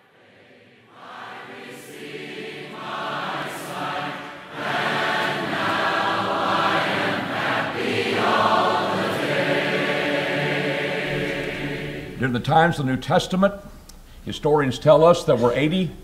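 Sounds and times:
choir singing: 0:00.0 - 0:12.4.

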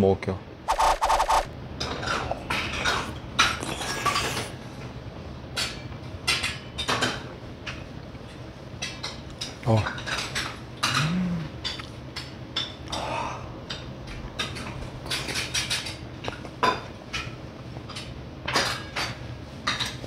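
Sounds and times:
person humming: 0:10.9 - 0:11.6.

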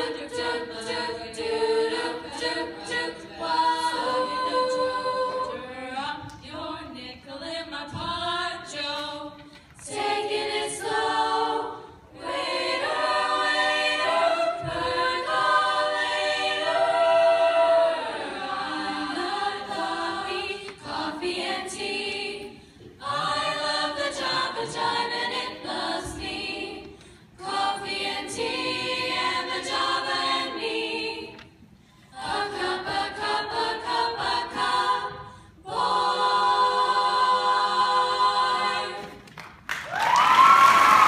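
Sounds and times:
girls' choir singing a cappella: 0:00.0 - 0:39.4
audience cheering and whooping: 0:39.8 - 0:41.0.

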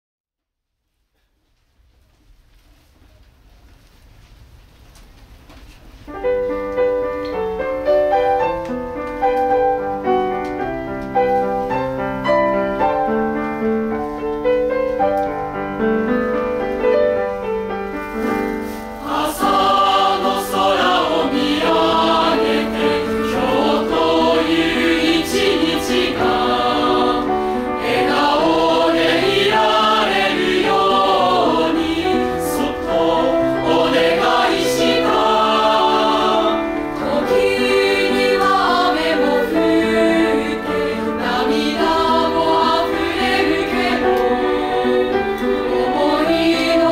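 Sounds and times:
piano playing: 0:06.1 - 0:46.9
mixed choir singing: 0:19.0 - 0:46.9.

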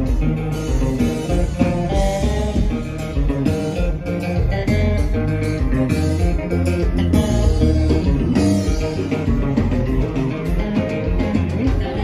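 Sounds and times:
bass guitar: 0:00.0 - 0:12.0
drums: 0:00.0 - 0:12.0
electric guitars: 0:00.0 - 0:12.0.

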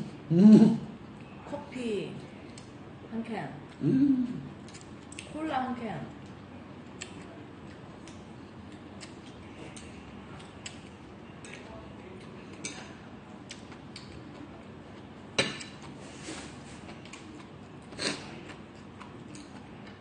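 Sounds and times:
room hum: 0:00.0 - 0:20.0
cutlery clicking on plates: 0:15.4 - 0:15.9.

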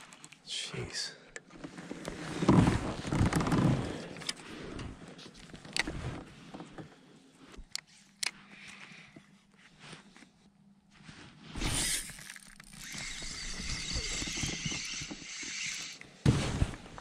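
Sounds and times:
fishing reel clicks: 0:11.8 - 0:16.0.

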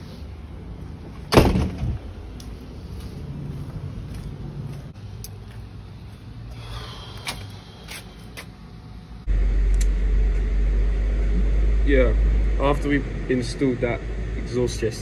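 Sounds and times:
low background rumble: 0:00.0 - 0:15.0
sandal footsteps on path: 0:02.2 - 0:08.6.

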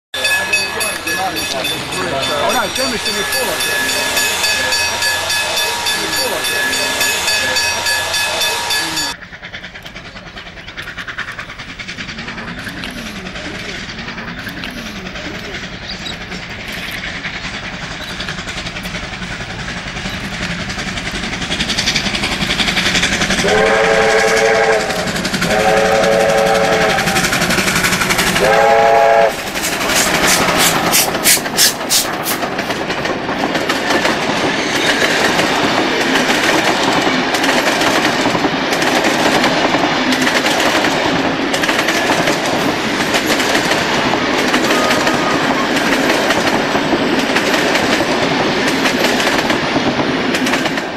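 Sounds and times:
steam locomotive exhaust beats: 0:00.2 - 0:50.9
wheels clicking over rail joints: 0:00.2 - 0:50.9
steam whistle blasts: 0:23.4 - 0:27.4, 0:28.4 - 0:29.4.

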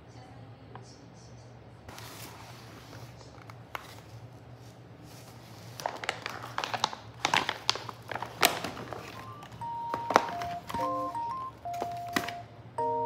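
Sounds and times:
plastic pouches crinkling: 0:03.0 - 0:12.5.

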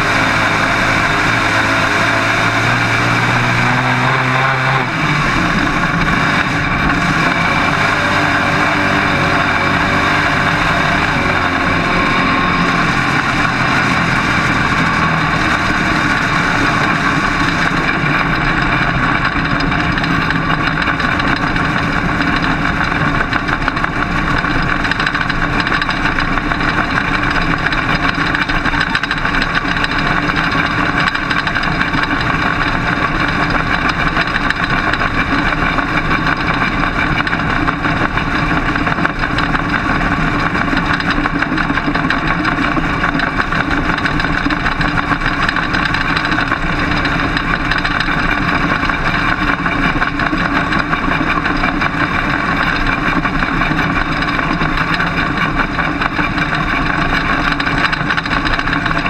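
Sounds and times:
race car engine running hard: 0:00.0 - 0:59.0.

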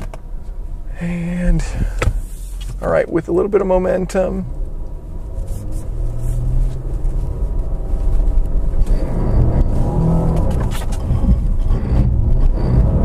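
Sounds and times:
low rumble: 0:00.3 - 0:13.0
car engine pulling under load: 0:04.1 - 0:13.0.

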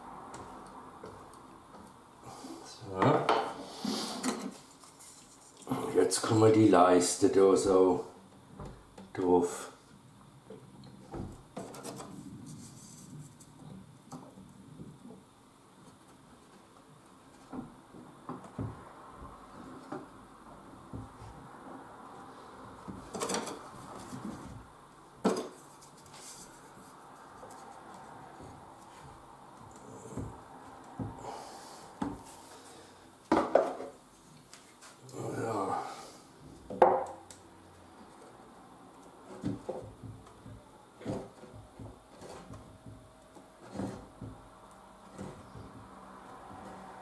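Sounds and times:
wood knocking and scraping: 0:10.5 - 0:15.2, 0:15.8 - 0:35.1, 0:36.5 - 0:47.0
wooden strips knocking on wood: 0:20.8 - 0:21.3, 0:33.3 - 0:34.0, 0:36.7 - 0:37.2, 0:39.3 - 0:47.0.

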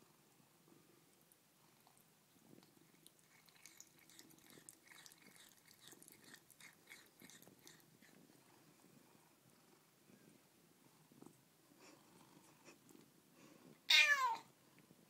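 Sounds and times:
cat purring: 0:00.0 - 0:13.9
cat licking wet hair: 0:01.8 - 0:08.3.

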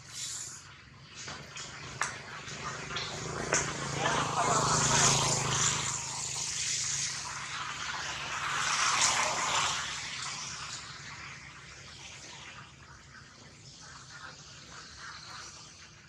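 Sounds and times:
rain falling on leaves: 0:02.4 - 0:06.5.

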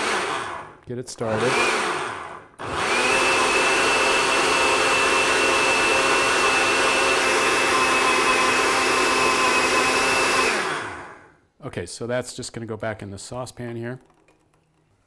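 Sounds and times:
blender motor whining: 0:00.0 - 0:11.3.

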